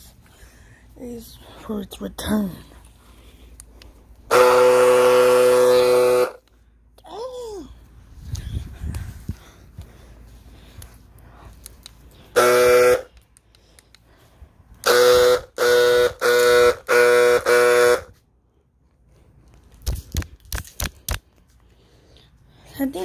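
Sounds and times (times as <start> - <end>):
car horn honking: 4.3 - 6.4, 12.3 - 13.1, 14.8 - 18.2.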